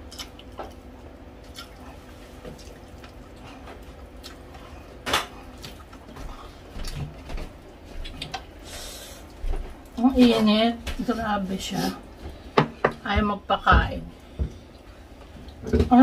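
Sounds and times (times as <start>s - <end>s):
chewing: 0.0s - 8.6s
wet mouth clicks and smacks: 8.0s - 8.4s.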